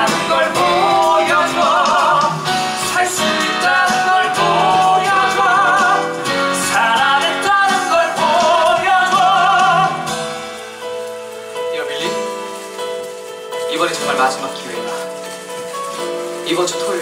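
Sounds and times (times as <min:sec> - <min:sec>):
man singing with vibrato: 0:00.0 - 0:10.3
band accompaniment: 0:00.0 - 0:17.0.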